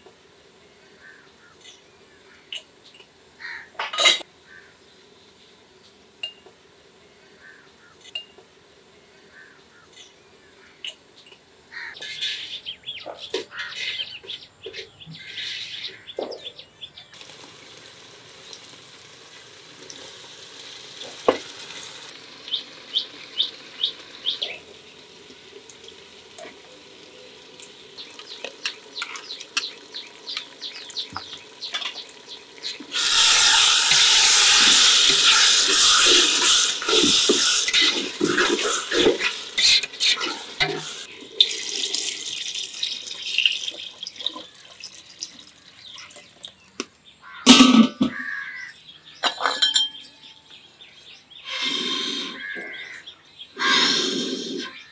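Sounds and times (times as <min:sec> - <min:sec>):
water sizzling in hot pot: 0:17.2 - 0:46.8.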